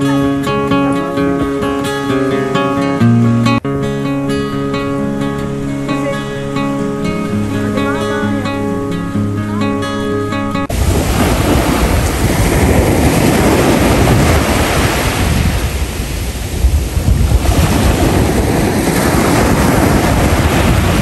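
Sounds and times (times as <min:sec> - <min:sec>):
sea waves washing on shore: 0:10.7 - 0:21.0
wind buffeting microphone: 0:10.7 - 0:21.0.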